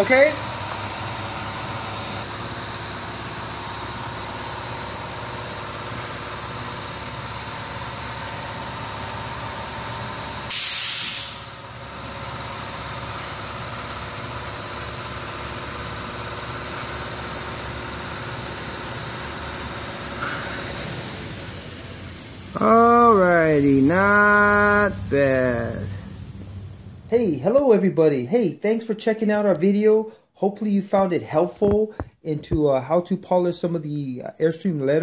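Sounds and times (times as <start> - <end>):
loud hiss of spray: 10.5 - 11.7, 20.8 - 26.8.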